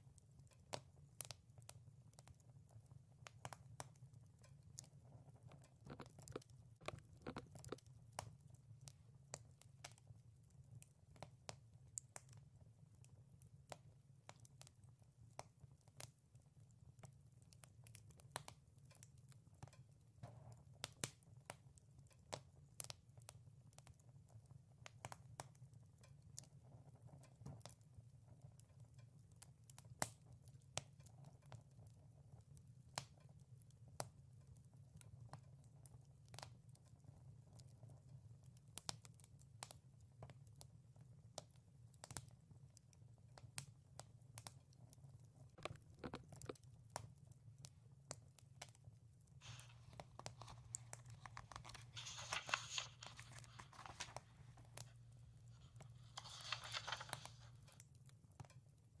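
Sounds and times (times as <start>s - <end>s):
wood fire crackling: 0.0s - 58.6s
low steady hum: 49.4s - 57.7s.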